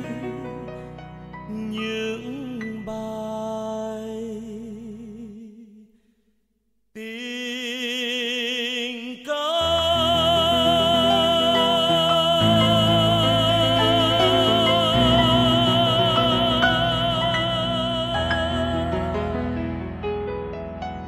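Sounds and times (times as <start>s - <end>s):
person singing with vibrato: 0.0s - 5.9s, 7.0s - 20.0s
musical accompaniment with bass: 9.8s - 21.0s.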